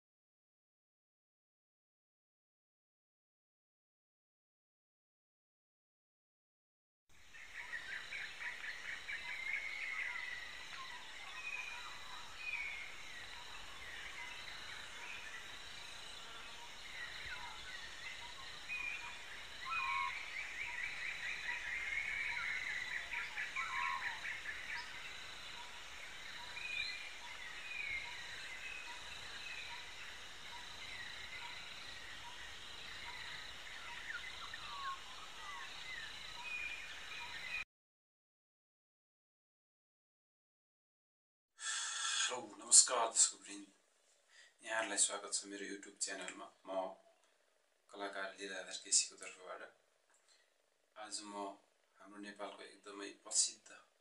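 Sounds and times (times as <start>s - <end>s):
birds chirping and whistling: 7.4s - 37.6s.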